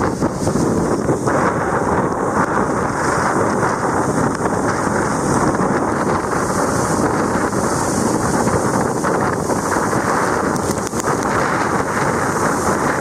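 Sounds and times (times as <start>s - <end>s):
waterfall rushing onto rock: 0.0s - 13.0s
wind buffeting microphone: 0.0s - 13.0s.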